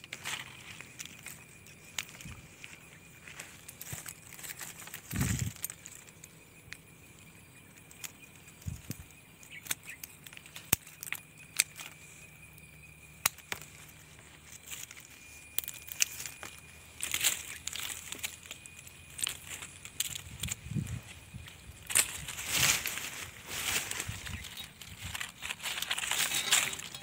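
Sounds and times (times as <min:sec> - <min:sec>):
pruning shears clicking and snipping: 0:15.6 - 0:27.0.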